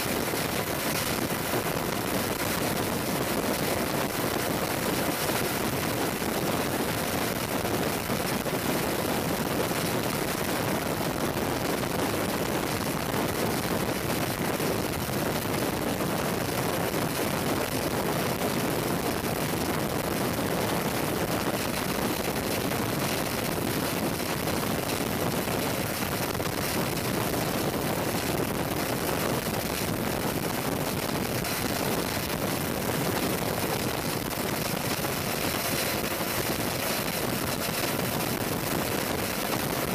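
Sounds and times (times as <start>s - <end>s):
aircraft engine and airflow rush: 0.0s - 39.9s.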